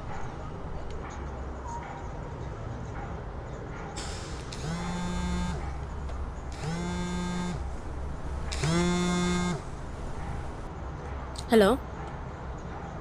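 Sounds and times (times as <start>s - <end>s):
mobile phone buzzing: 4.6s - 5.7s, 6.6s - 7.8s, 8.5s - 9.7s.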